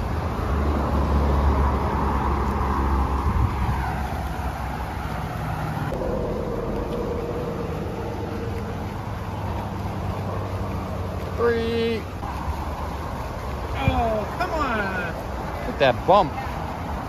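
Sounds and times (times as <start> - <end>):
vehicle engine running: 4.2 - 15.5.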